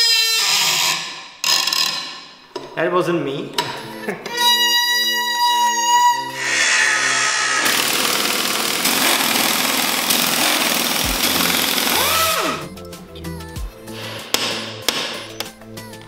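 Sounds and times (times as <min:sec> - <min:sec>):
wrench winding down whine: 0:05.0 - 0:12.7
pneumatic impact wrench: 0:06.4 - 0:12.6.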